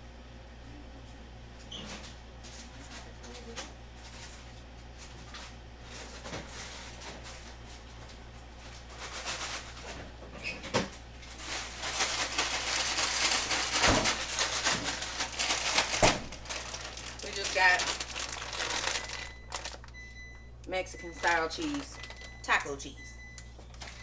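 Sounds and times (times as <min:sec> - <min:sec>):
plastic bag crinkling: 0:08.6 - 0:09.9, 0:11.2 - 0:20.1, 0:20.9 - 0:24.0.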